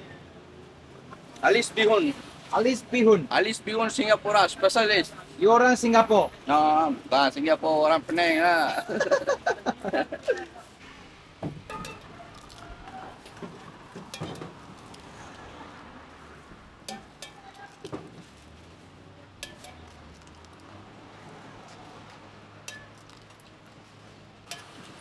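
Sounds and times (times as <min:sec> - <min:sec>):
eggshell clinking on metal mug: 0:19.4 - 0:19.9.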